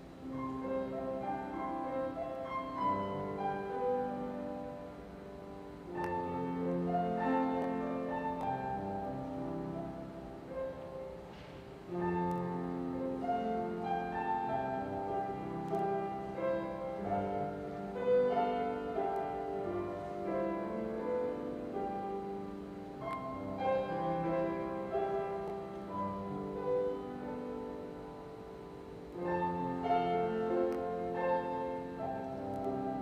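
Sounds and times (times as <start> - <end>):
slow keyboard music: 0.0 - 33.0.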